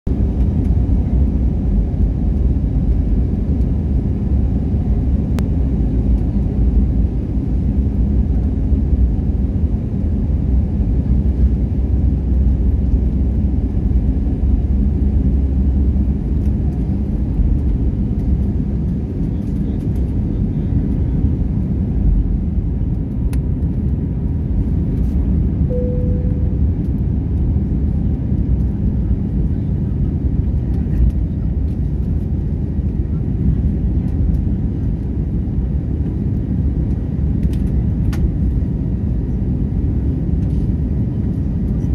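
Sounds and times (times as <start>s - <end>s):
airliner cabin rumble: 0.1s - 41.9s
single tone: 25.7s - 26.9s.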